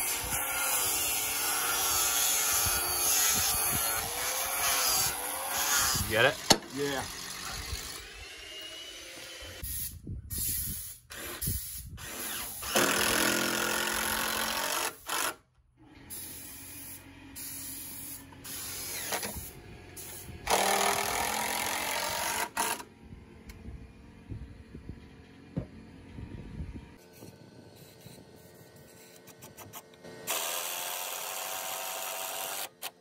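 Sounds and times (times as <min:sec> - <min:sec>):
cordless drill driving screws: 0:12.0 - 0:15.4, 0:18.5 - 0:19.5, 0:20.1 - 0:22.9, 0:29.0 - 0:33.0.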